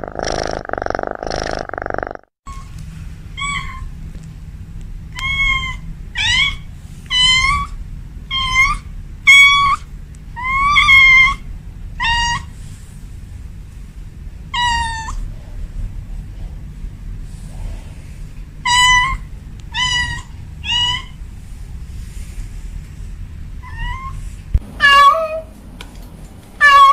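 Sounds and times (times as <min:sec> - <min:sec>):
cat meowing: 0:26.6 - 0:26.9.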